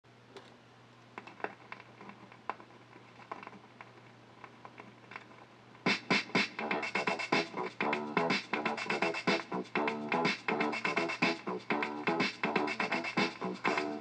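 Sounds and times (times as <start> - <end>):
vinyl crackles and pops: 0.3 - 14.0
music with loud beat: 5.9 - 14.0.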